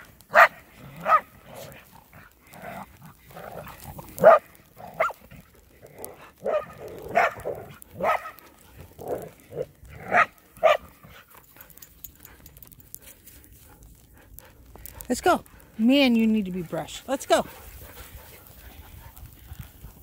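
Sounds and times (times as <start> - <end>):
dogs barking: 0.2 - 1.7, 3.2 - 11.2.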